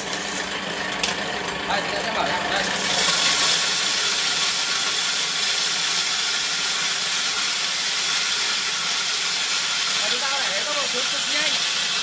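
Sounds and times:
corn mill grinding grain: 0:00.0 - 0:12.0.

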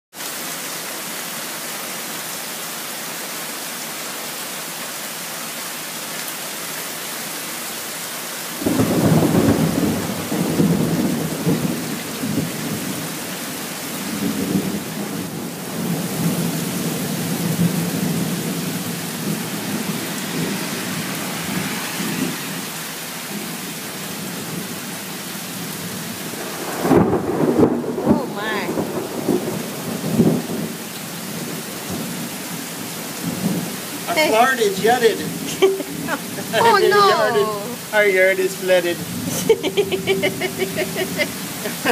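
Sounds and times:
heavy rain pouring: 0:00.1 - 0:41.9
thunder rumbling: 0:08.6 - 0:13.1, 0:17.3 - 0:22.4, 0:26.2 - 0:30.7.

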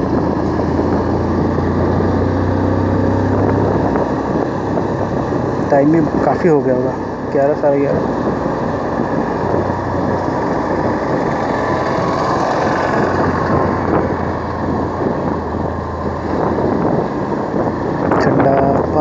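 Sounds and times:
motorcycle engine drone: 0:00.0 - 0:19.0
road and wind noise: 0:00.0 - 0:19.0.

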